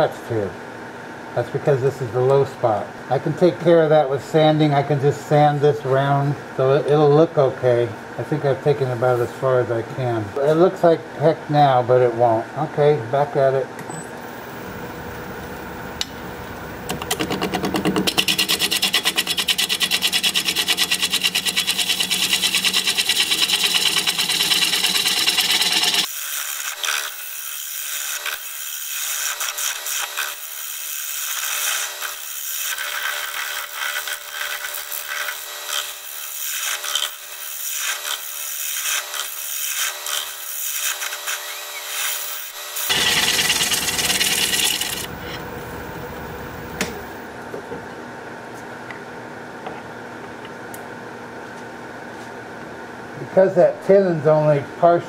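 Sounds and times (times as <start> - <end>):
gouge scraping wood on lathe: 17.2 - 27.1, 31.3 - 45.4.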